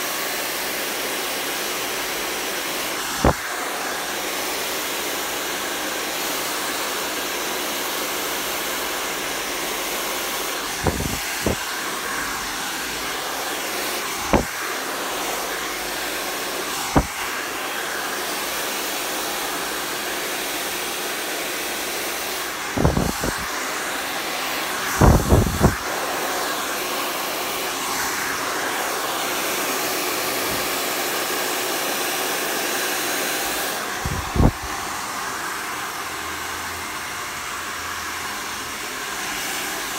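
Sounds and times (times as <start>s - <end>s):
hair dryer blowing: 0.0s - 39.9s.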